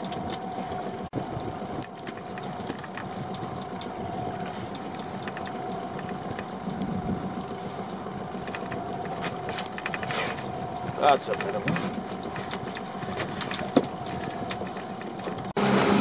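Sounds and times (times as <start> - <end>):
boat engine idling: 0.0 - 16.0
light clicks and knocks: 8.4 - 15.6.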